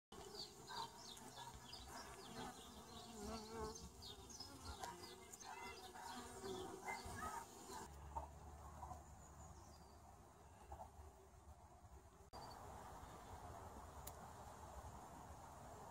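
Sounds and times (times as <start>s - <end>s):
bees buzzing: 0.2s - 7.9s
bees flying past: 0.2s - 8.0s.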